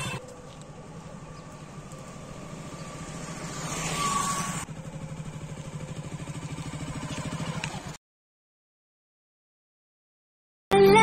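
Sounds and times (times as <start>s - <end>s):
motorcycle engine puttering: 4.4s - 8.0s.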